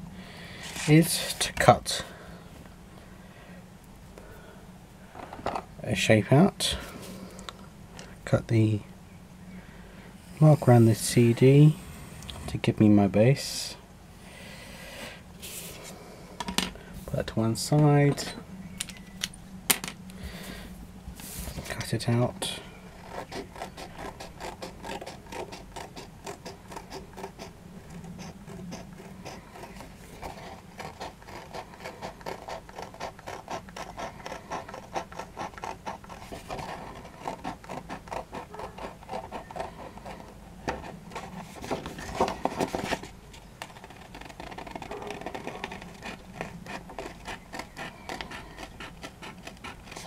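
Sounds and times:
paper rustling: 0.5 - 1.0, 36.1 - 50.0
scissors snipping paper: 23.0 - 40.2, 43.6 - 50.0.

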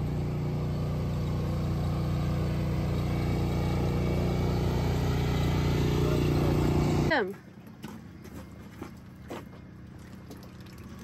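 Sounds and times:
small gasoline engine running: 0.0 - 7.8.

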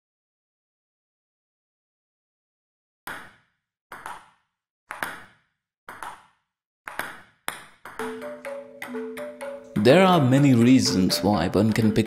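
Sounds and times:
table tennis ball hits: 3.1 - 9.8.

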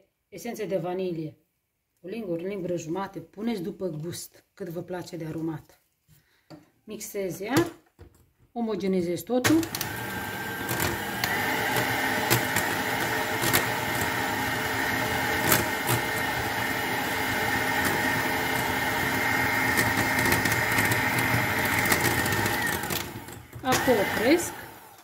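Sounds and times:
electric hand mixer whining: 9.5 - 25.0.

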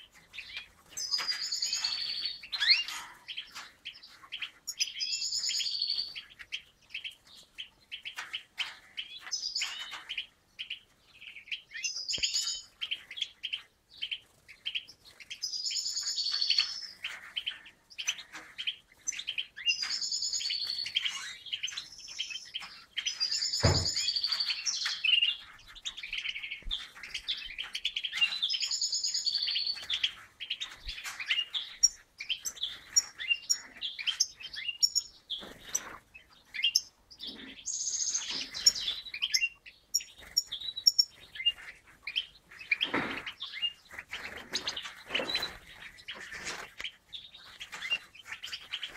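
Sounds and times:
finches twittering and singing: 0.0 - 48.9
low thump: 23.6 - 24.0.

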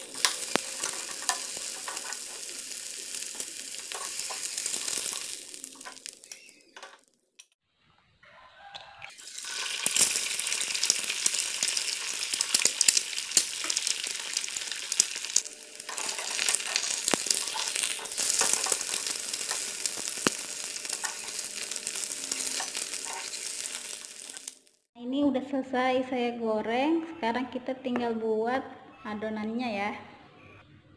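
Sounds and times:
oil popping: 0.0 - 6.6, 9.1 - 24.8
egg sizzling in oil: 0.0 - 6.8, 8.7 - 24.9.

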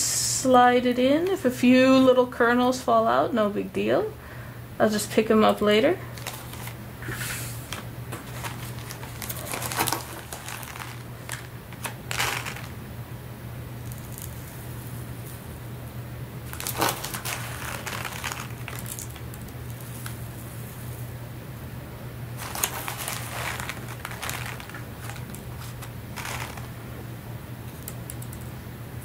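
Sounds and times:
plastic bag crinkling: 6.1 - 6.8, 7.7 - 12.8, 13.8 - 15.4, 16.4 - 21.0, 22.3 - 26.9
rice grains rustling: 8.2 - 12.8, 16.5 - 21.1, 22.4 - 26.8.

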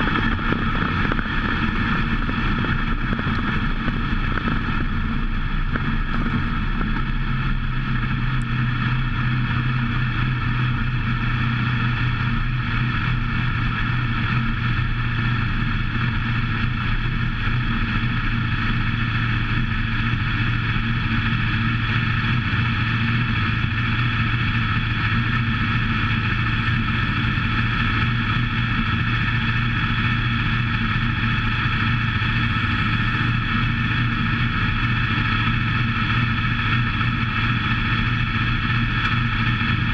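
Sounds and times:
race car engine running: 0.0 - 39.9.

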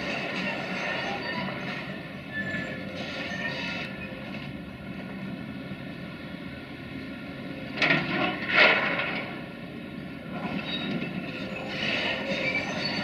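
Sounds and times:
rattling scraping with squeaks: 0.0 - 4.3, 10.4 - 13.0
excavator diesel engine running: 0.0 - 13.0.

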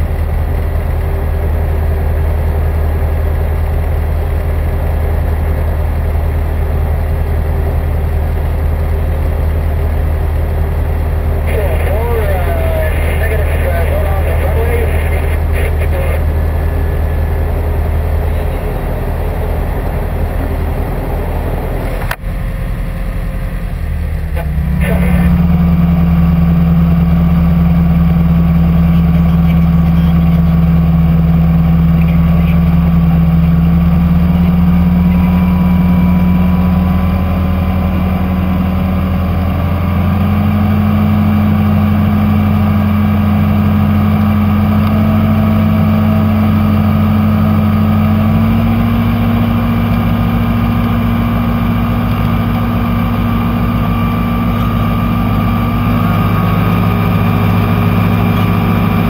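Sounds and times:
motor glider engine droning: 0.0 - 59.0.

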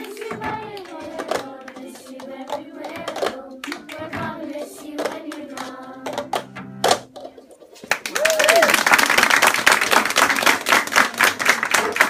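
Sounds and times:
hand claps: 0.0 - 4.2, 7.9 - 12.0
children singing: 0.0 - 6.5.

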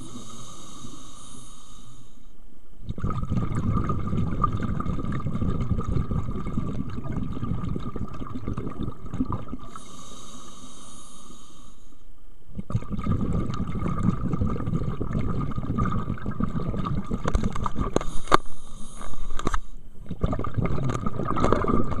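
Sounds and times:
regulator inhalation hiss: 0.0 - 2.3, 9.7 - 12.0, 18.0 - 19.7
exhaled bubbles rumbling underwater: 2.8 - 10.0, 12.5 - 18.1, 19.9 - 22.0.

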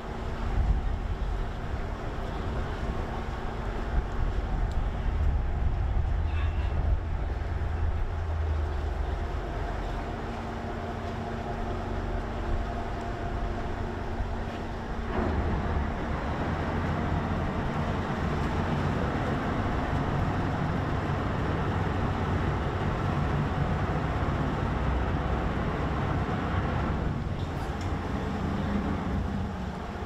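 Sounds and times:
ferry engine rumble: 0.0 - 30.0.

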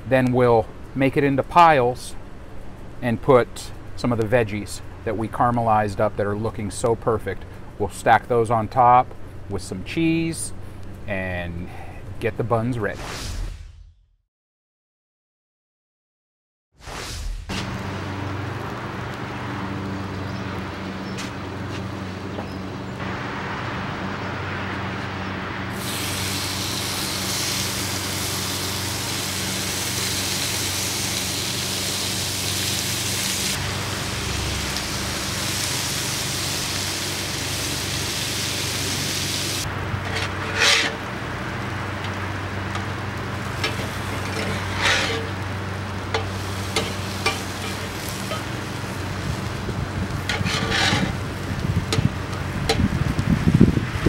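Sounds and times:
steak sizzling on skillet: 25.8 - 52.8
spatula scraping: 39.9 - 41.2, 43.6 - 45.5, 46.1 - 48.5, 50.1 - 51.3.

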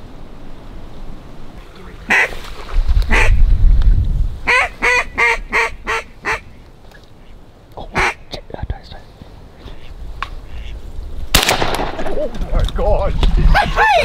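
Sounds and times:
low microphone rumble: 1.5 - 4.5
duck quacking: 2.1 - 2.4, 4.5 - 6.5, 7.2 - 8.2, 9.7 - 10.8.

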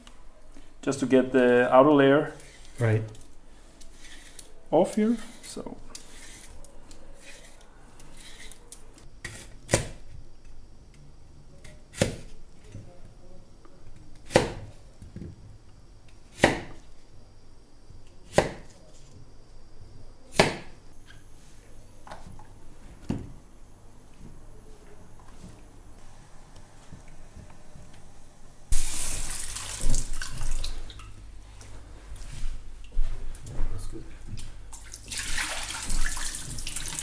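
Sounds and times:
knife chopping on wooden board: 14.3 - 14.6, 16.4 - 16.8, 18.3 - 18.7, 20.4 - 20.7.

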